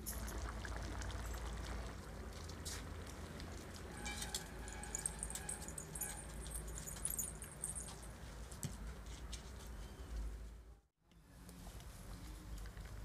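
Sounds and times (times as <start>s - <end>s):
bangles jingling: 4.0s - 8.2s.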